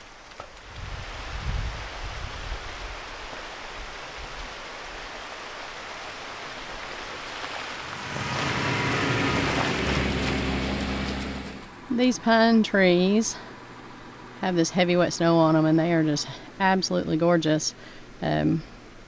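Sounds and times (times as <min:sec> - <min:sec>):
steady rain-like hiss: 0:00.0 - 0:19.0
car engine driving past: 0:07.4 - 0:11.9.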